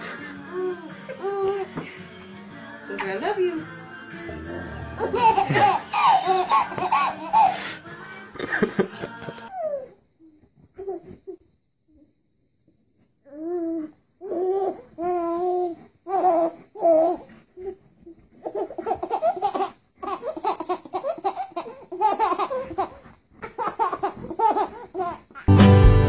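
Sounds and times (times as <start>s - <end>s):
baby laughing: 4.8s - 9.8s, 18.4s - 25.5s
baby squealing: 5.0s - 7.6s.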